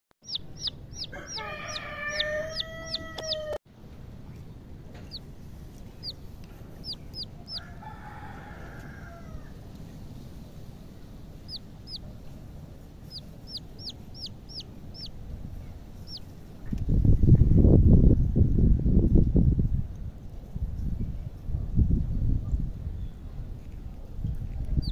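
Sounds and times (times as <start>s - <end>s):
chicks peeping: 0.2s - 3.6s, 5.0s - 7.7s, 11.5s - 12.3s, 12.9s - 16.3s, 24.5s - 24.9s
adult chicken calling: 0.3s - 3.6s.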